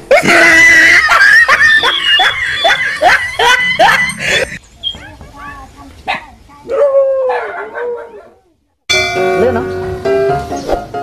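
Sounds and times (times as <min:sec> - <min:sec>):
person laughing: 0:00.1 - 0:04.6.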